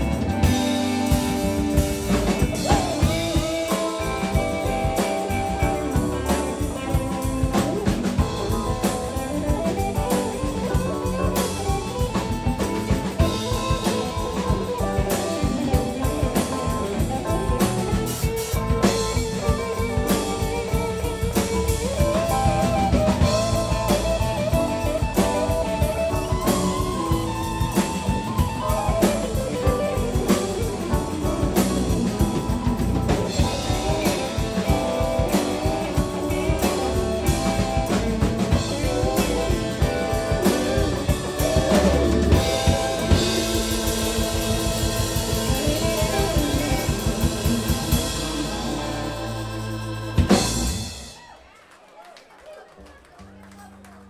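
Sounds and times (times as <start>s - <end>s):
electric guitar lead: 0.0s - 51.2s
rock band playing: 0.0s - 51.8s.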